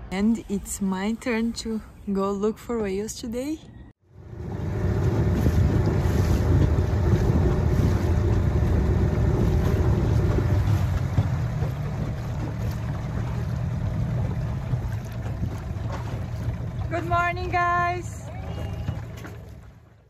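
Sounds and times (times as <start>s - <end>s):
wind buffeting microphone: 4.3s - 19.2s.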